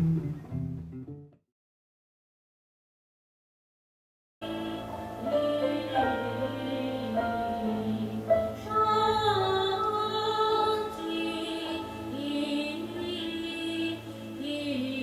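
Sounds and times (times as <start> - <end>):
voices singing held notes: 4.4 - 15.0.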